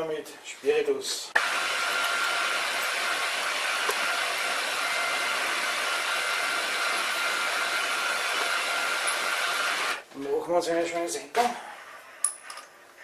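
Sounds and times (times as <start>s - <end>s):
milling machine running: 1.4s - 10.0s.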